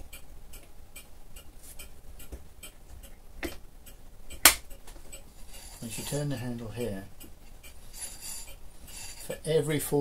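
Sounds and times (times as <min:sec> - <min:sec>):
light mechanical ticking: 0:00.0 - 0:10.0
sharp loud click: 0:04.4 - 0:04.7.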